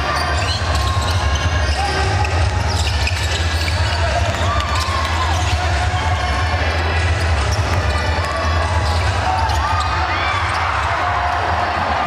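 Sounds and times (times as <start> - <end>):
sneakers squeaking: 0.0 - 11.9
basketball bouncing on court: 0.4 - 6.2.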